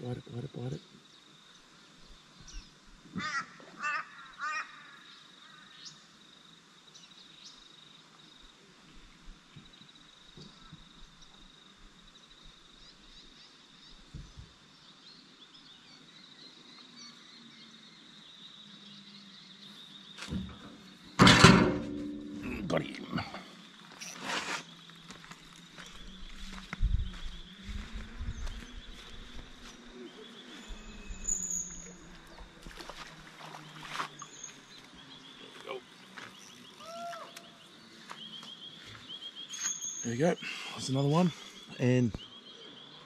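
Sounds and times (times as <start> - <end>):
insect drone: 0.0 - 43.0
bird cawing: 3.2 - 5.7.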